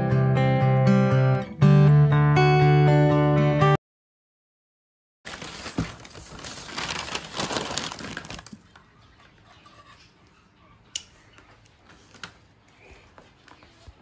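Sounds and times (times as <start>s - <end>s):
gift wrapping tearing and crumpling: 5.3s - 8.7s
handling rustles: 5.3s - 8.7s.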